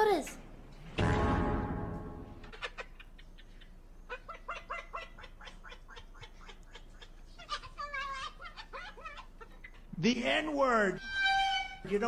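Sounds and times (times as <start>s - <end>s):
parrot mimicking laughter: 2.4s - 10.0s.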